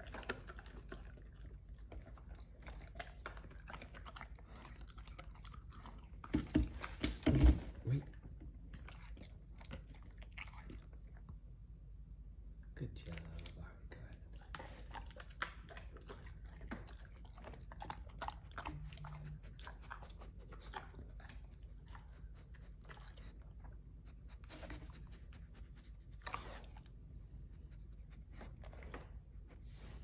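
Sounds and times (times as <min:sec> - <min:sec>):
dog chewing a treat: 0:00.0 - 0:06.9, 0:14.3 - 0:29.2.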